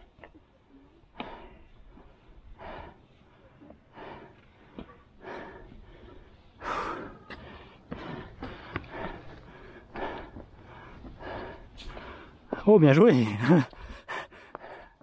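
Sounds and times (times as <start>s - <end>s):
person breathing hard: 1.1s - 12.6s, 13.7s - 15.0s.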